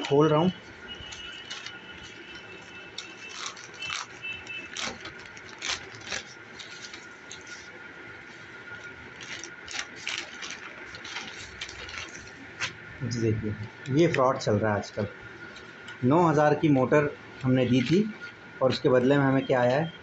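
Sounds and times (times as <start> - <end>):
plastic mailer crinkling: 0.0 - 14.5
plastic tearing: 1.0 - 7.7, 8.7 - 12.8.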